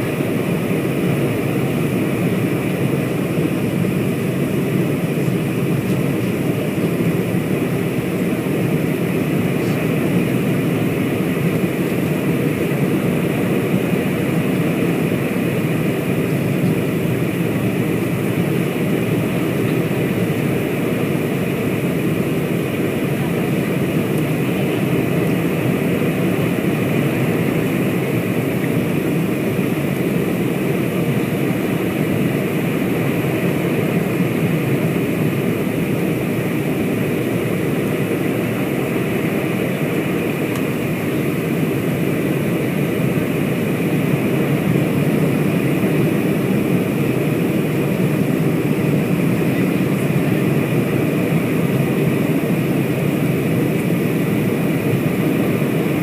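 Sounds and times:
jet engines rumbling: 0:00.0 - 0:56.0.

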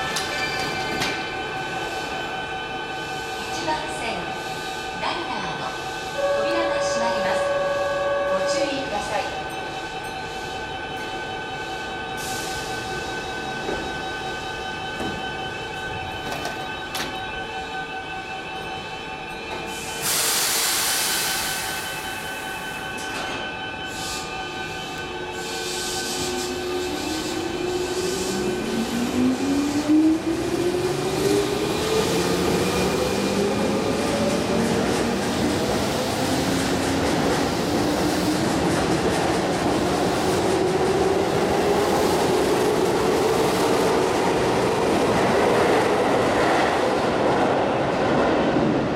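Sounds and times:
air hiss burst: 0:20.0 - 0:21.8.

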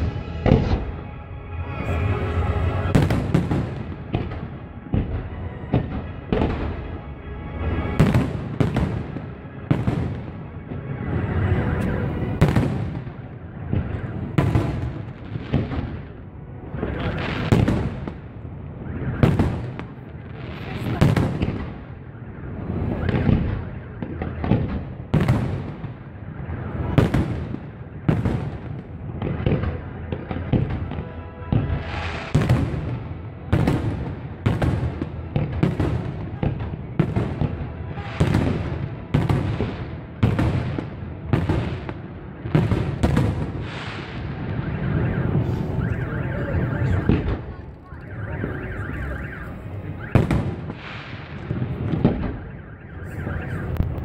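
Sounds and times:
fireworks bursting with loud bangs: 0:00.0 - 0:01.1, 0:01.8 - 0:54.0.

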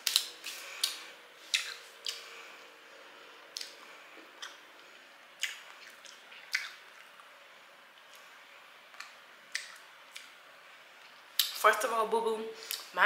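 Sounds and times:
person chewing food: 0:00.0 - 0:02.6, 0:03.5 - 0:10.4
wet mouth smacks: 0:00.1 - 0:02.2, 0:05.4 - 0:07.1, 0:08.9 - 0:10.3.

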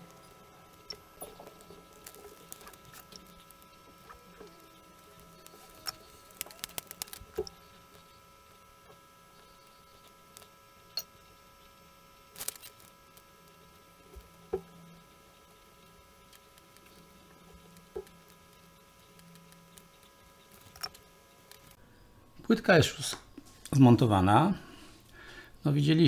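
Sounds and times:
faint steady hum: 0:00.0 - 0:26.0
small clicks and taps: 0:16.2 - 0:21.8.

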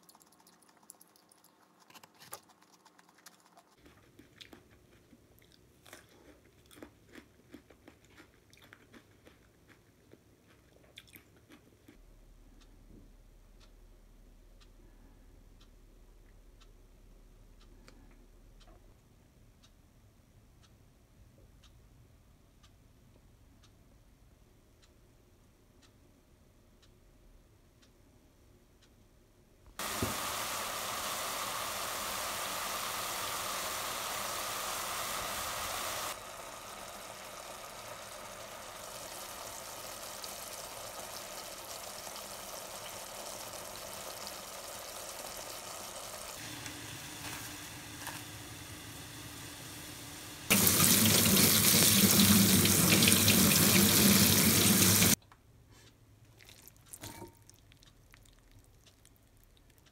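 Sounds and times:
running water: 0:29.8 - 0:46.5, 0:50.5 - 0:55.2
food sizzling in pan: 0:29.8 - 0:55.2.

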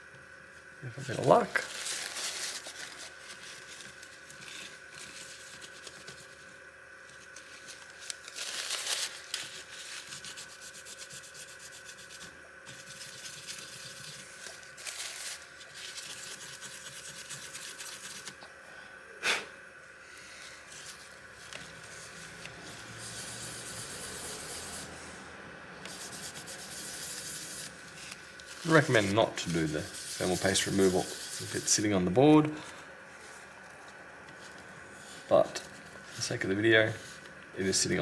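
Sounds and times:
tissue paper scrubbing: 0:01.0 - 0:06.4, 0:07.2 - 0:18.4, 0:20.3 - 0:25.0, 0:25.9 - 0:32.0.

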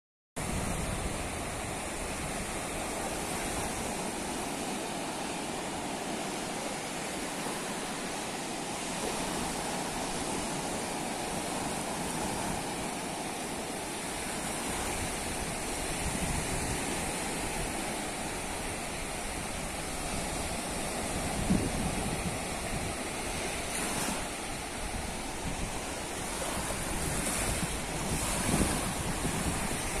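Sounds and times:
wind rumbling on microphone: 0:00.4 - 0:06.4, 0:08.4 - 0:30.0
waves washing onto beach: 0:00.4 - 0:30.0.

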